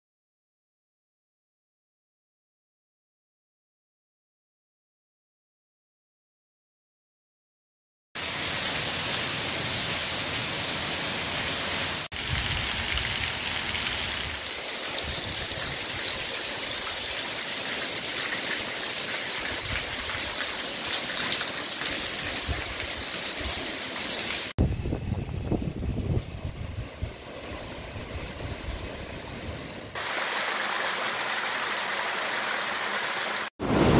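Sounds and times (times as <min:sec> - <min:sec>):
heavy rain on paving and roof: 0:08.2 - 0:24.6, 0:29.9 - 0:33.9.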